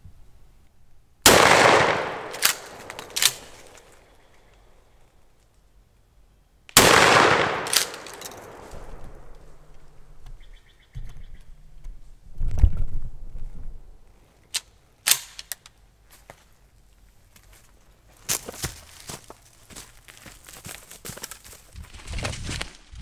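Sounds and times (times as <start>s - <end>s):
shotgun shots: 1.3s - 3.8s, 6.8s - 9.3s
sharp cracks: 1.3s - 4.1s, 6.7s - 9.7s, 14.6s - 15.7s.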